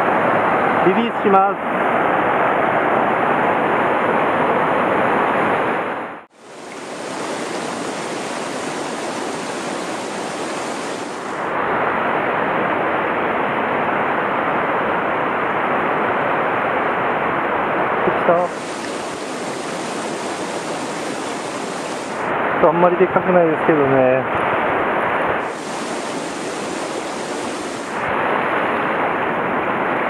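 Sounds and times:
stream rushing over rocks: 0:00.0 - 0:30.0.

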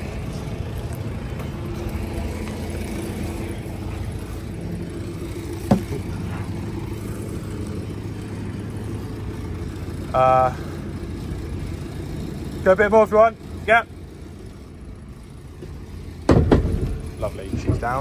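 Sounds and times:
forklift diesel engine running: 0:00.0 - 0:18.0
sharp knock: 0:05.7 - 0:06.0.

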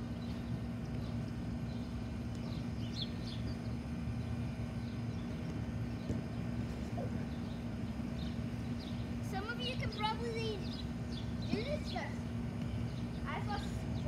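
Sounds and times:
birds chirping: 0:00.0 - 0:14.0
steady low hum: 0:00.0 - 0:14.0.

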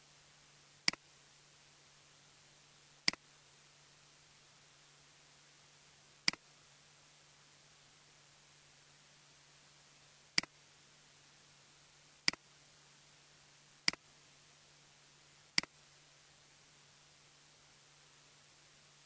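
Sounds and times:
faint steady hum and hiss: 0:00.0 - 0:19.0.

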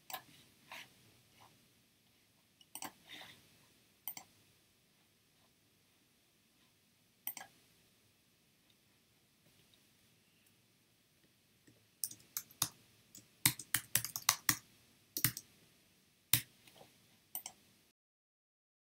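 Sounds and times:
keyboard typing clicks: 0:04.1 - 0:04.3, 0:12.0 - 0:14.6, 0:15.2 - 0:15.5.

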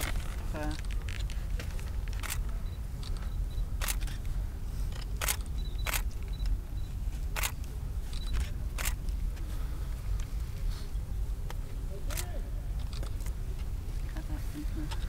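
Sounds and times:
camera shutter clicking: 0:03.8 - 0:04.2, 0:05.2 - 0:06.1, 0:08.2 - 0:09.0.

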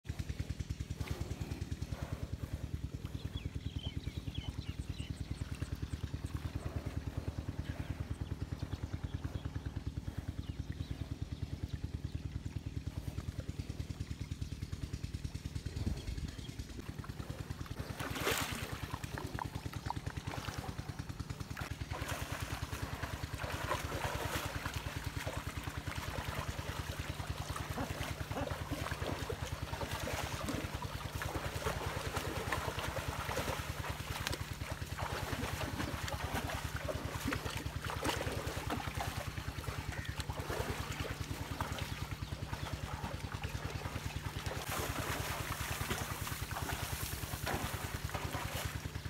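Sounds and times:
engine droning: 0:00.0 - 0:49.0
water splashing and trickling: 0:17.2 - 0:49.0.

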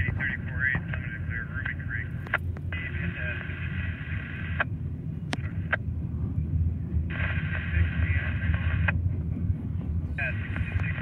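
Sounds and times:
scanner radio hiss: 0:02.8 - 0:04.6, 0:07.1 - 0:08.9, 0:10.2 - 0:11.0
train wheels rumbling on rails: 0:04.7 - 0:11.0.

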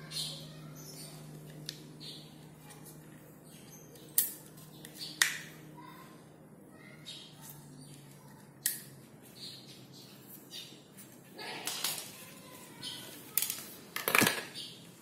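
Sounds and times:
toy revolver snapping clicks: 0:04.0 - 0:05.4, 0:08.6 - 0:08.9.

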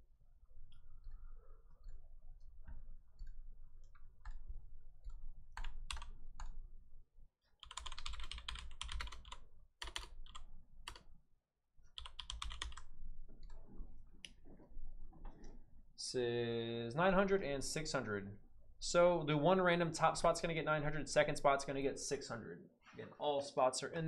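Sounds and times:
typing on computer keyboard: 0:03.2 - 0:06.6, 0:07.6 - 0:11.0, 0:11.9 - 0:13.6.

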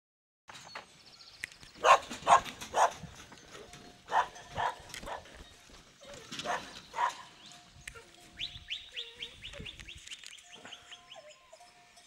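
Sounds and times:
quiet outdoor ambience: 0:00.5 - 0:12.0
dog barking: 0:01.8 - 0:03.0, 0:04.1 - 0:05.3, 0:06.4 - 0:07.3.

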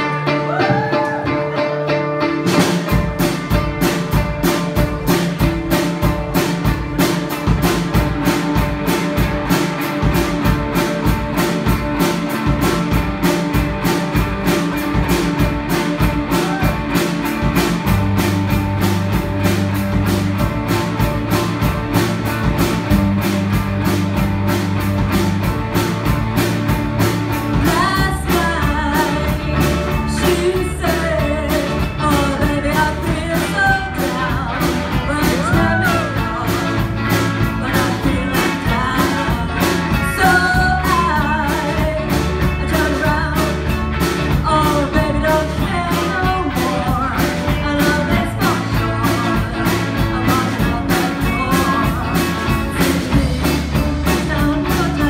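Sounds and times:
bass guitar: 0:00.0 - 0:55.0
electric guitars: 0:00.0 - 0:55.0
drum kit fast beat: 0:02.4 - 0:55.0
woman singing: 0:27.5 - 0:55.0.

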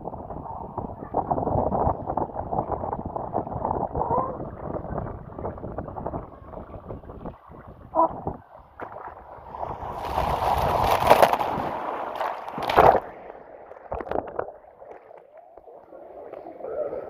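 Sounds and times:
water slide rushing whoosh: 0:00.3 - 0:16.6
splash into pool: 0:08.8 - 0:15.3.

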